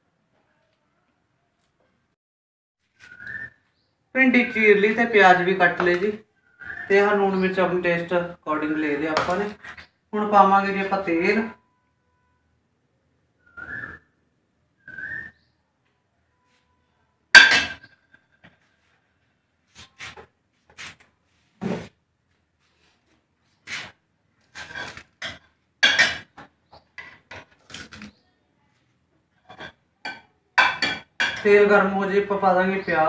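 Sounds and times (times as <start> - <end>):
cookware clinking on counter: 17.4 - 18.0, 24.6 - 27.6, 29.5 - 31.7.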